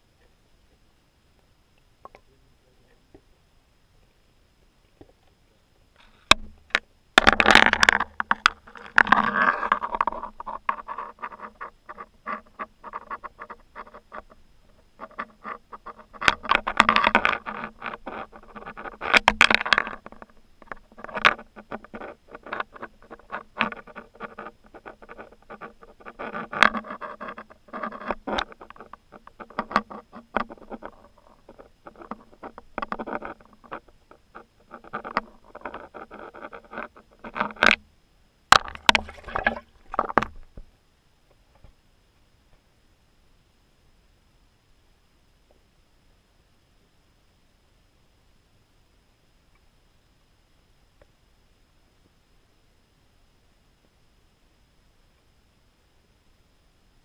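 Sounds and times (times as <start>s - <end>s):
pole knocking and scraping on ice: 6.2s - 13.6s, 38.6s - 40.6s.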